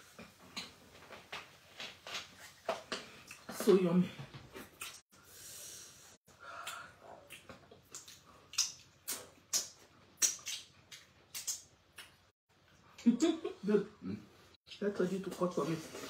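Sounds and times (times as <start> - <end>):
chewing and lip-smacking: 4.6 - 5.0, 6.6 - 12.9.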